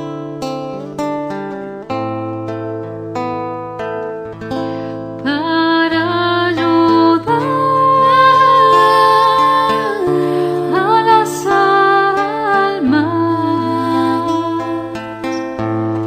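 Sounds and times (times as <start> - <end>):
female choir singing: 7.5 - 14.9.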